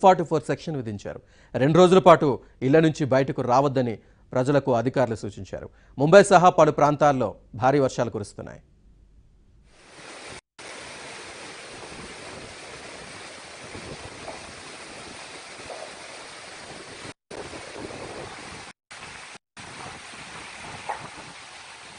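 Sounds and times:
storm wind: 10.7s - 21.9s.

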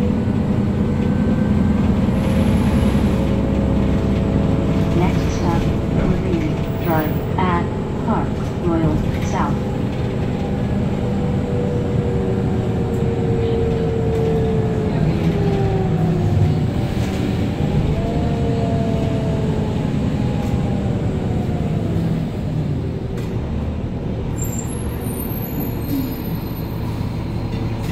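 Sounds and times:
bus engine droning: 0.0s - 27.9s.

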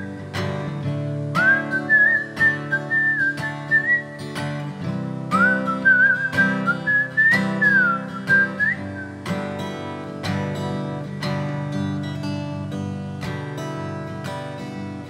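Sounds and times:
acoustic guitar strumming: 0.0s - 15.0s
whistled melody: 1.3s - 4.4s, 5.3s - 9.2s.

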